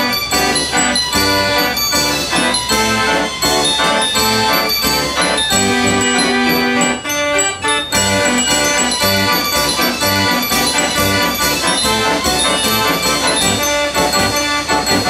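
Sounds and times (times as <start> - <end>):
fairground organ playing: 0.0 - 15.0.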